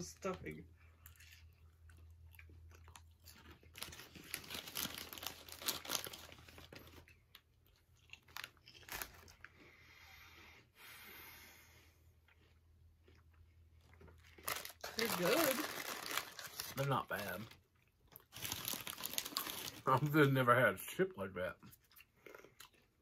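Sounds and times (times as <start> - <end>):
potato chips being chewed: 0.8 - 9.7, 12.2 - 20.1, 21.6 - 23.0.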